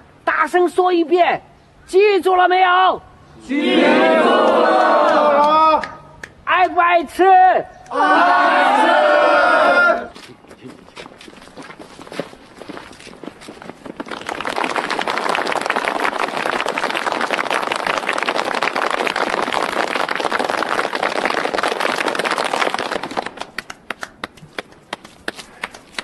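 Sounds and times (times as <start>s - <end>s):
crowd clapping: 4.4s - 6.4s, 13.4s - 26.0s.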